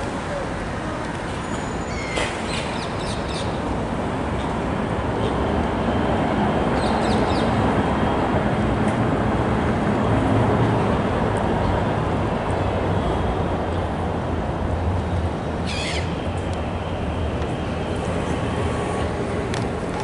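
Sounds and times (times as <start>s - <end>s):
city traffic rumble: 0.0s - 20.0s
gull calls: 15.7s - 16.1s.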